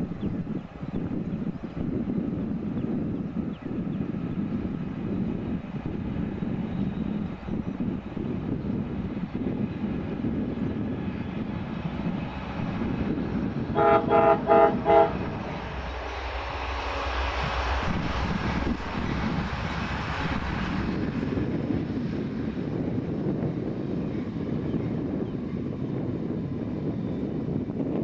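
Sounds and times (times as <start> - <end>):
train rumbling past: 0.0 - 28.0
train horn blasts: 13.7 - 16.2.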